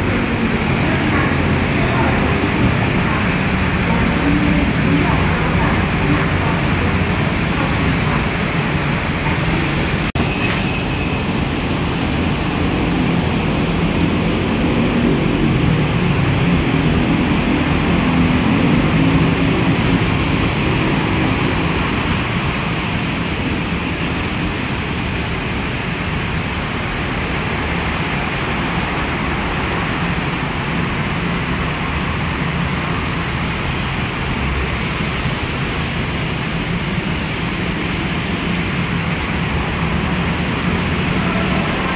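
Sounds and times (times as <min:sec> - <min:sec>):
monorail train rumbling: 0:00.0 - 0:41.9.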